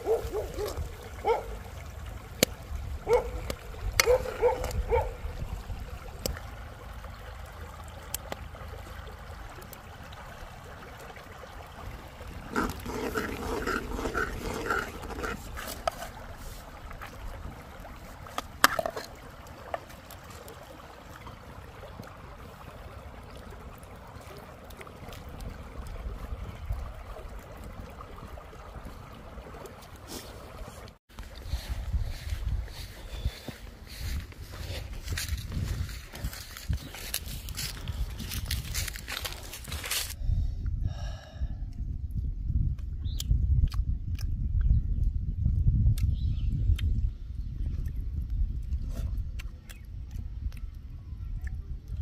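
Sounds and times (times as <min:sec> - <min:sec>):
stream running: 0:00.0 - 0:40.2.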